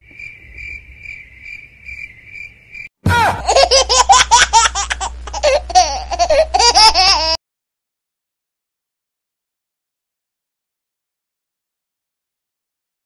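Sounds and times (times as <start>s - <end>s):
cricket chirping: 0.0s - 2.9s
loud high-pitched laughter: 3.1s - 7.4s.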